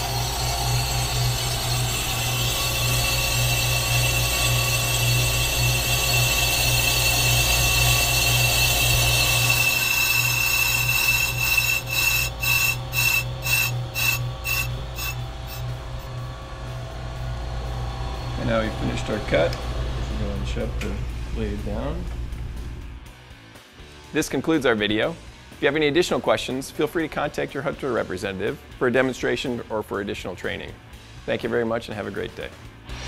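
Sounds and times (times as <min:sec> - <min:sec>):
cutting bit scraping hiss: 0:00.0 - 0:16.1
lathe motor hum: 0:00.0 - 0:23.0.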